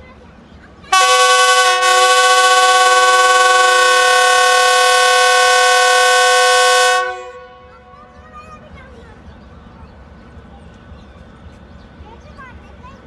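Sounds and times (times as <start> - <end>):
locomotive air horn blast: 0.9 - 7.6.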